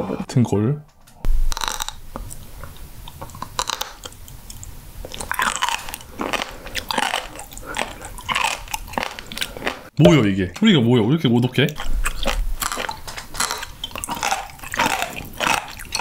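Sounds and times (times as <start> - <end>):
crunchy chewing of cartilage: 1.5 - 9.9, 11.7 - 16.0.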